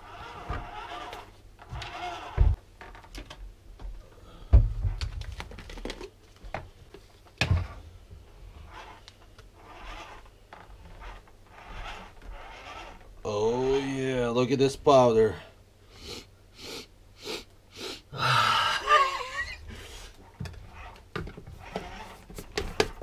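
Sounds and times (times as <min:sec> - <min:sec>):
loud thumps: 0:01.7 - 0:02.6.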